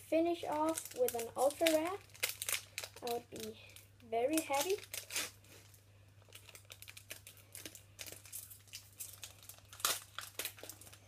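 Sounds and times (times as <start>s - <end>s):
foil wrapper crinkling: 0.3s - 11.0s.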